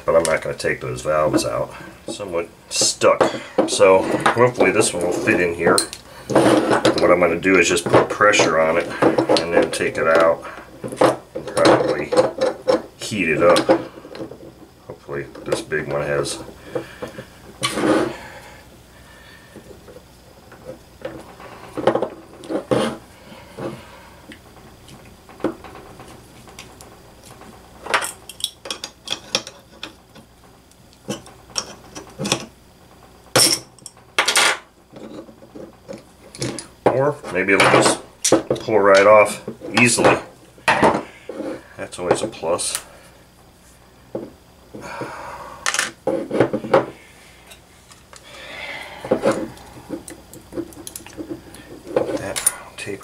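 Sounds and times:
metal scraping: 1.2 - 14.5, 17.6 - 18.4.

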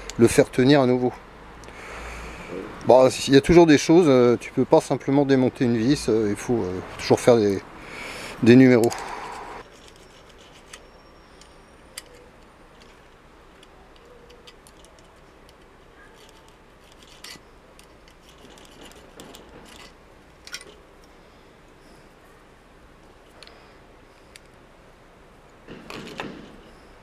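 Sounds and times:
hand tools clicking and scraping metal: 8.5 - 21.2.

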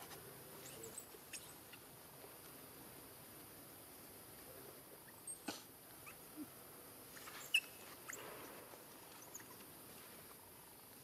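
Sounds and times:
faint background hiss: 0.0 - 11.0.

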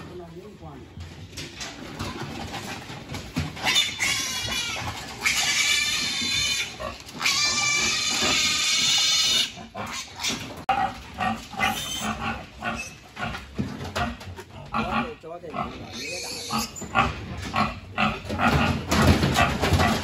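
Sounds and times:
pig grunts: 1.9 - 20.0
piglets screaming and squealing: 3.4 - 13.2, 14.5 - 20.0
knocks: 18.2 - 20.0.

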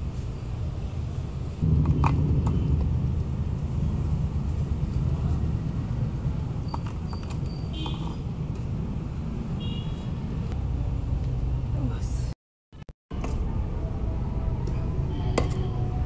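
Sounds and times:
steady low rumble: 1.5 - 6.6.

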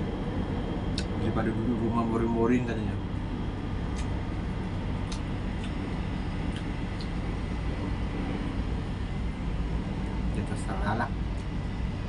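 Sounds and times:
machinery rumble: 0.0 - 12.0
eating and chewing clicks: 0.9 - 1.1, 3.9 - 4.2, 5.0 - 5.8, 6.4 - 7.2.

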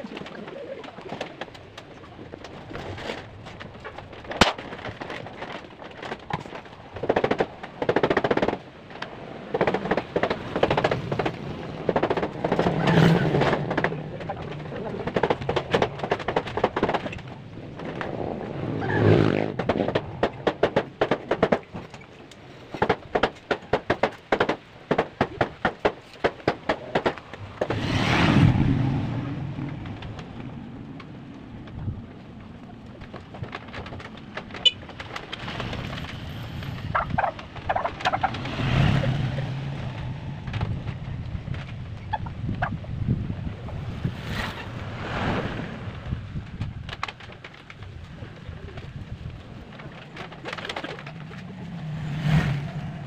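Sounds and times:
wind rumbling on microphone: 0.0 - 53.0.

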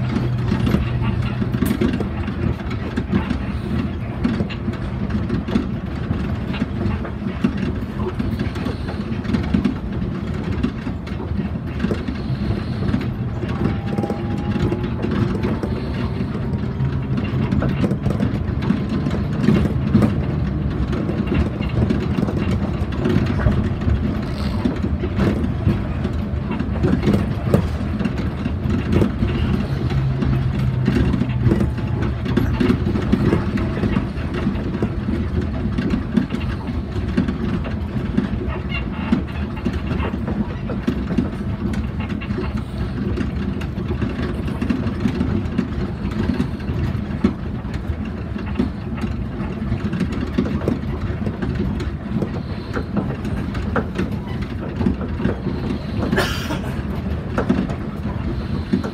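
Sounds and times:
train rumbling on guideway: 0.0 - 58.9.

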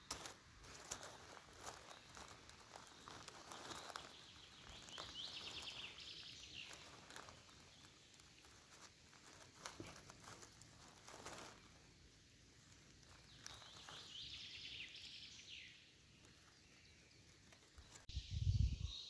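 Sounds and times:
footsteps on forest floor: 0.0 - 15.6
twigs cracking underfoot: 0.0 - 18.1.

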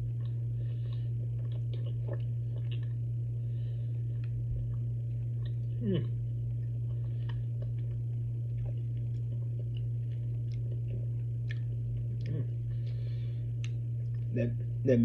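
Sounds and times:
steady low hum: 0.0 - 15.0
wet mouth clicks chewing: 0.2 - 3.0, 6.8 - 13.0.

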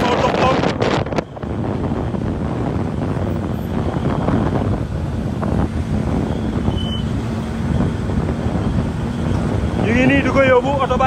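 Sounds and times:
vehicle road and engine noise: 0.0 - 11.0
wind buffeting microphone: 0.0 - 11.0.

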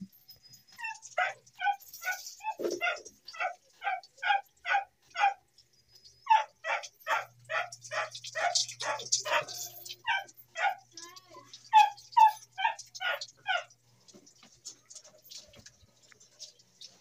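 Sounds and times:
dog barking: 0.8 - 5.5, 6.3 - 10.9, 11.7 - 13.8
hose water splashing: 6.7 - 17.0.

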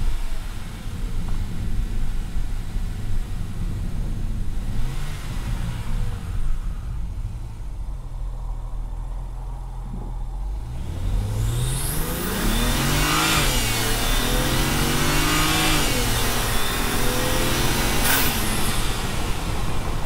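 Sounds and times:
car engine accelerating: 0.0 - 20.0
turbo whoosh: 9.8 - 20.0
rising turbo whistle: 11.4 - 19.8.

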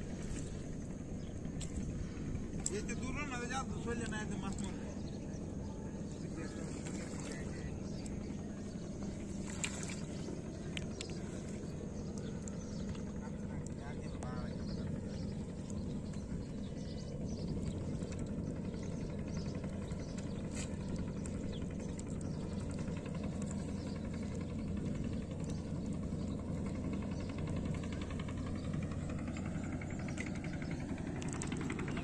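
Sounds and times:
engine running at low speed: 0.0 - 32.0.

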